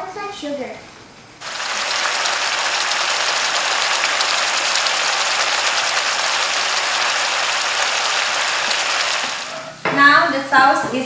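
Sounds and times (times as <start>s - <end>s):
sauce bubbling and sizzling in wok: 1.4s - 9.7s.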